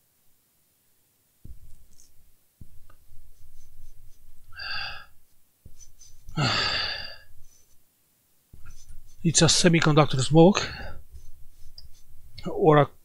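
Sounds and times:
man breathing: 3.4 - 7.8, 10.6 - 12.1
man sighing: 6.3 - 7.2.

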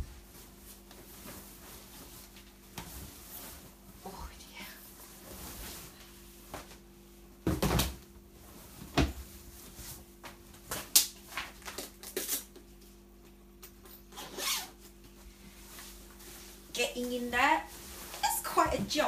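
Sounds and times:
leather suit thumping on floor: 7.4 - 8.0.

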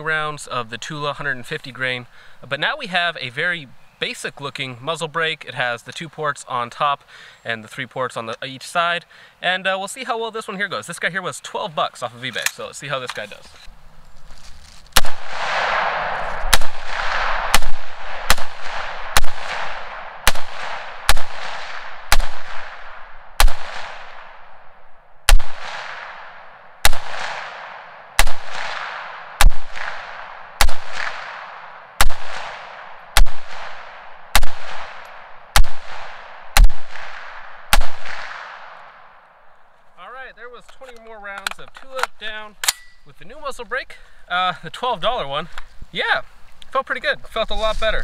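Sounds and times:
rifle shots echoing: 15.0 - 39.2.

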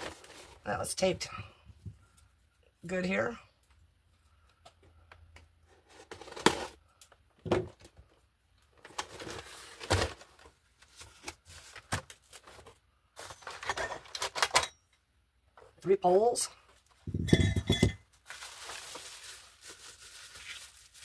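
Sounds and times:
packaging rustling: 0.0 - 0.7, 8.7 - 14.5, 18.1 - 21.0
knocks and thumps: 17.1 - 18.0.

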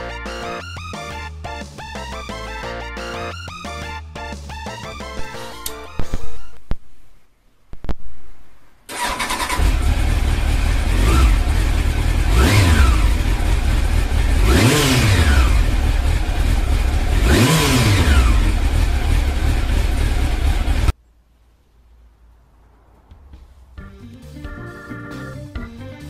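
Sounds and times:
motorcycle engine cranking: 8.9 - 20.9
motorcycle engine idling: 8.9 - 20.9.

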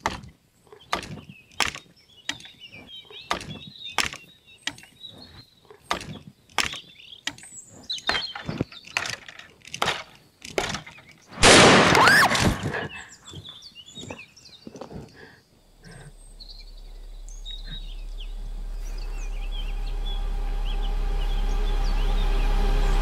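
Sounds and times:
birds chirping: 0.0 - 23.0
loud gunshot: 11.4 - 12.6.

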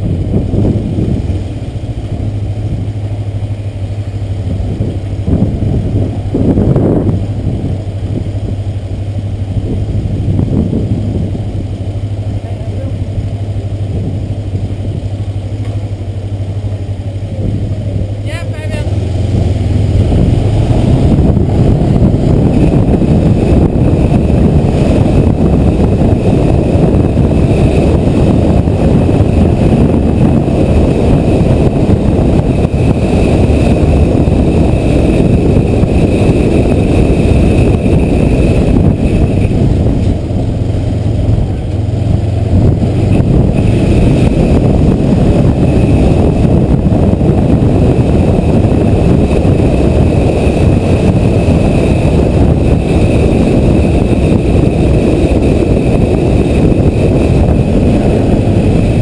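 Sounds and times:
motorcycle engine running: 0.0 - 59.0
wind noise on microphone: 0.0 - 59.0.

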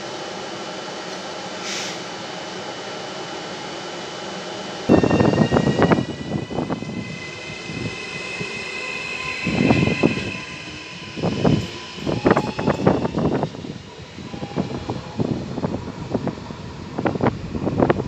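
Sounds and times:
electric train traction whine: 0.1 - 18.0
train rumbling and clattering: 4.8 - 18.0.

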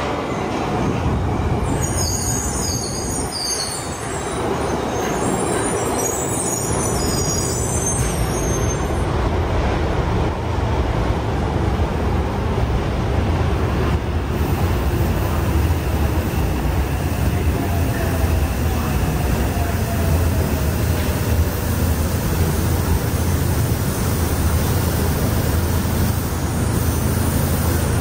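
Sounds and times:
train rumbling to a stop: 0.0 - 28.0
high wavering brake squeals: 1.6 - 9.1.

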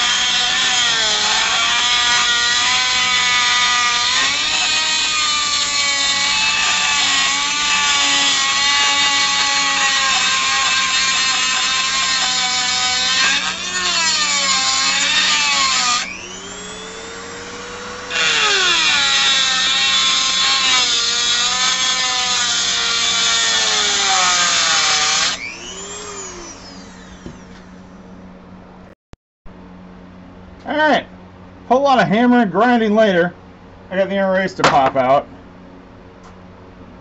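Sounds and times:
grinder cutting steel: 0.0 - 27.8.

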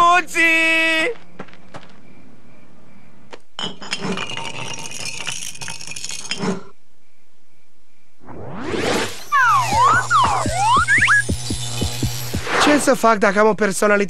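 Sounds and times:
rising whoosh: 8.2 - 12.9.

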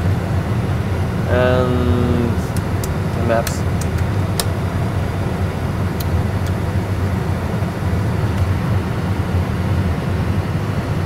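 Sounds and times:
cockpit hum and rush: 0.0 - 11.0
knob clicks: 2.5 - 4.6.

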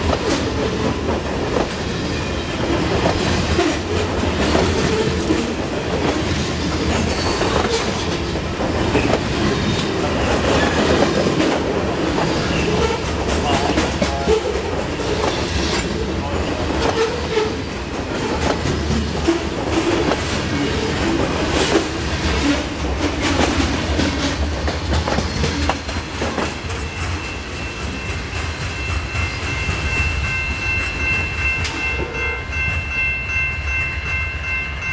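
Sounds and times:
wheels clacking over rail joints: 0.0 - 27.4
steel wheels rumbling on rail: 0.0 - 34.9
high ringing tone: 26.6 - 34.9.

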